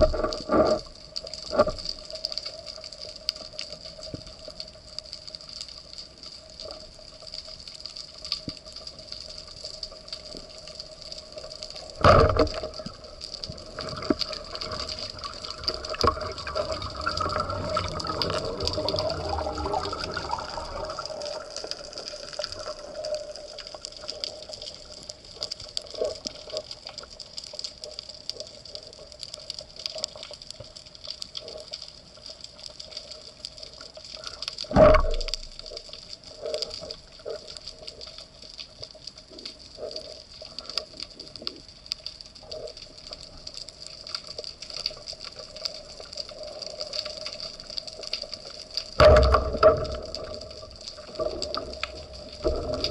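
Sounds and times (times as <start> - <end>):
underwater water rushing: 0.0 - 2.4, 8.6 - 27.1, 33.6 - 38.0, 44.2 - 52.9
faint clicks: 0.0 - 52.9
steady underwater hiss: 0.0 - 52.9.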